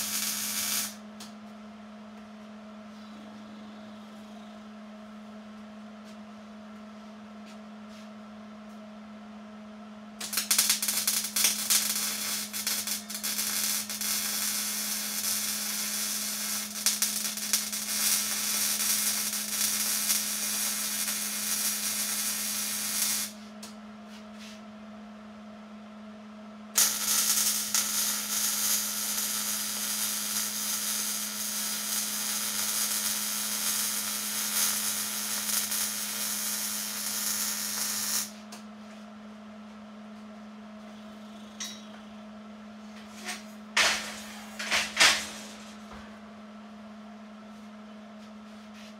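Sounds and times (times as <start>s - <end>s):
welding arc crackling: 0.0s - 1.0s, 10.2s - 23.4s, 26.8s - 38.4s
steady low hum: 0.0s - 48.9s.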